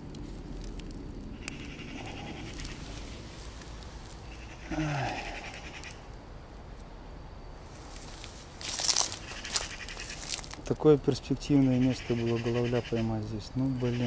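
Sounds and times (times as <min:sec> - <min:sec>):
man groaning: 0:04.7 - 0:05.4
man breathing hard: 0:04.7 - 0:05.6.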